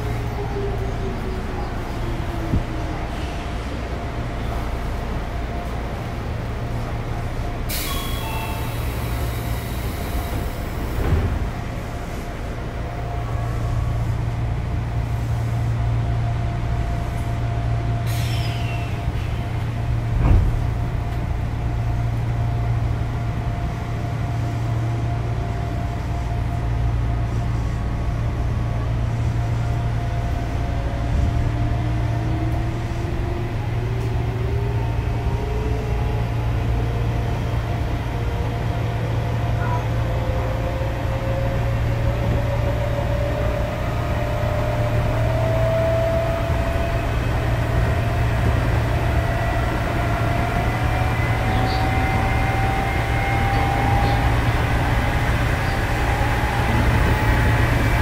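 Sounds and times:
electric train humming: 18.9 - 58.0.

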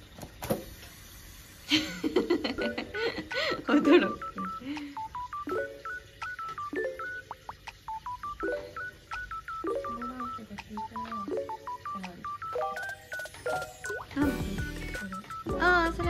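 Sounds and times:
beep-like electronic melody: 3.4 - 16.0.

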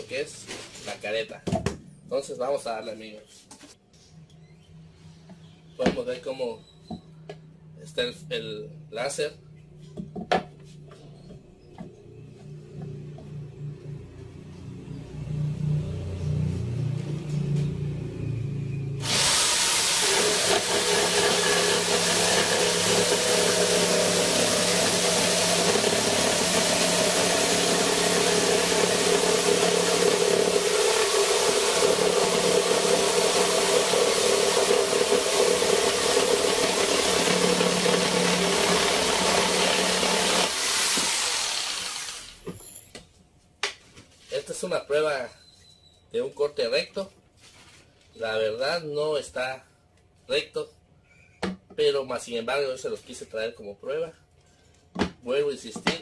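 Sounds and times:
jigsaw cutting wooden board: 19.0 - 42.4.

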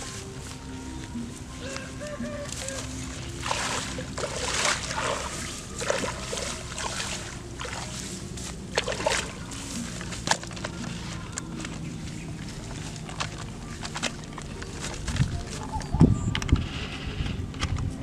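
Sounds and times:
rustling in grass: 0.0 - 16.0
water sloshing: 2.4 - 16.0.

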